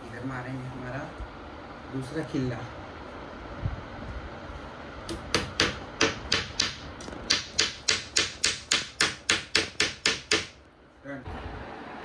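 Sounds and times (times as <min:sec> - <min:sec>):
hammer striking nail into wood: 0:05.1 - 0:10.6.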